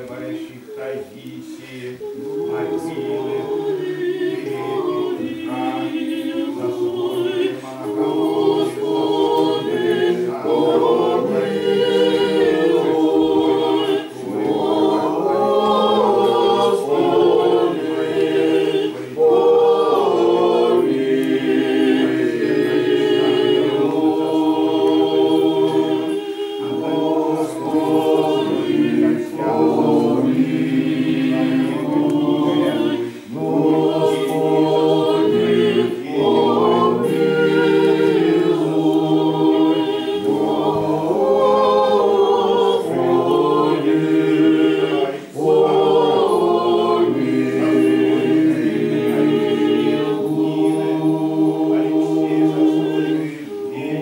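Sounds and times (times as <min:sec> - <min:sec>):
choir chanting in harmony: 0:00.0 - 0:54.0
singers breathing: 0:33.0 - 0:33.4, 0:45.1 - 0:45.4.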